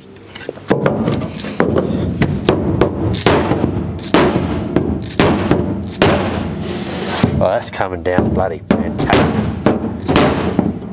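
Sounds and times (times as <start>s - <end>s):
hammer blows on sheet steel: 0.7s - 10.9s.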